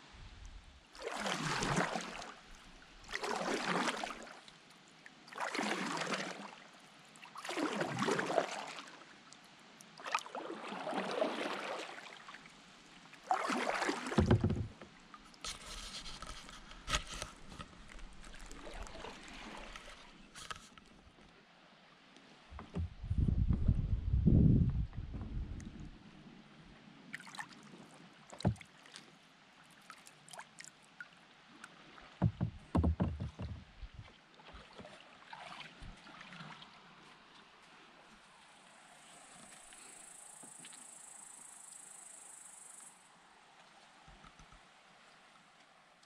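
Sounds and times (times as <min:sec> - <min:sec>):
paddle strokes splashing in water: 0:00.9 - 0:04.6, 0:05.2 - 0:09.0, 0:09.9 - 0:12.5, 0:13.2 - 0:21.1, 0:27.1 - 0:30.7, 0:31.5 - 0:41.0
light clicks and knocks: 0:14.2 - 0:18.0, 0:22.5 - 0:23.7, 0:32.2 - 0:34.0.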